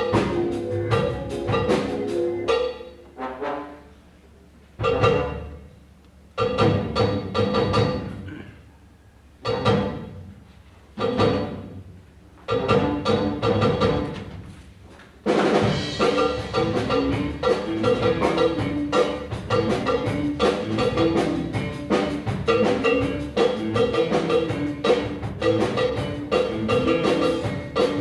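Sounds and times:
drum kit and percussion beat: 0.0 - 3.1, 4.8 - 5.6, 6.4 - 8.3, 9.5 - 10.3, 12.5 - 14.4, 15.2 - 28.0
loud band chord: 0.0 - 4.0, 15.4 - 28.0.

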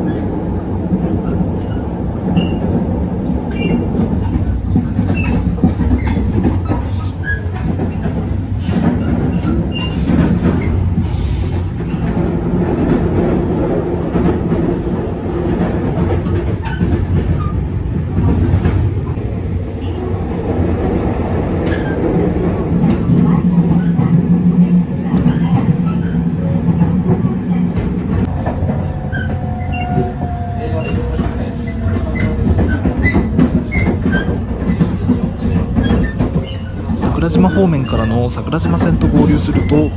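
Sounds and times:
train running rumble: 0.0 - 39.9
wheels clicking over rail joints: 28.2 - 37.6.

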